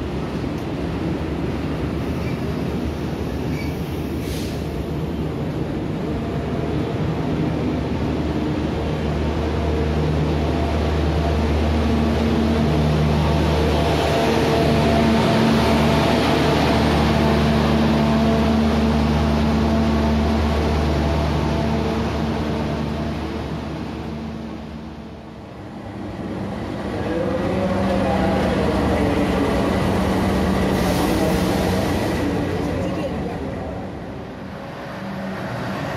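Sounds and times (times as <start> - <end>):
locomotive engine hum: 0.0 - 35.9
train wheels rumbling on rails: 0.0 - 35.9.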